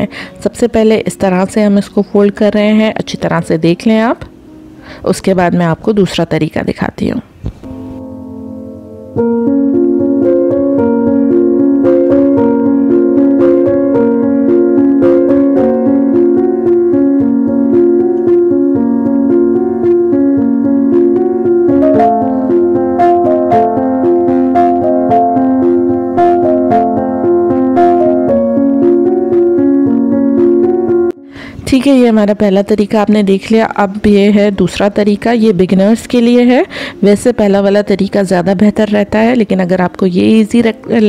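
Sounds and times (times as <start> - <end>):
keyboard melody: 0.0 - 5.8, 7.6 - 32.7, 40.0 - 41.0.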